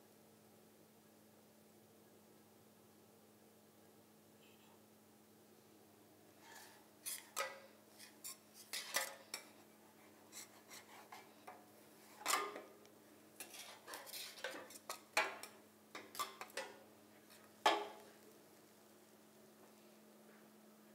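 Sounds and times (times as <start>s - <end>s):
faint steady hum: 0.0s - 20.9s
metal utensil scraping a plate: 6.4s - 9.5s, 10.3s - 11.3s, 13.4s - 16.8s.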